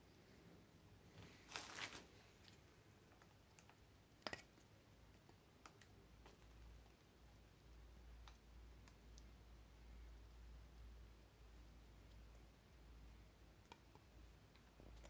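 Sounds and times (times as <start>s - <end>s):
crinkly rustle: 1.2s - 2.6s.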